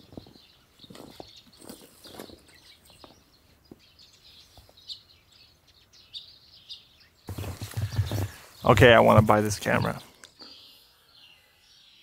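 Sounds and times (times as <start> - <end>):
small birds chirping: 0.0 - 12.0
footsteps in snow: 7.3 - 9.6.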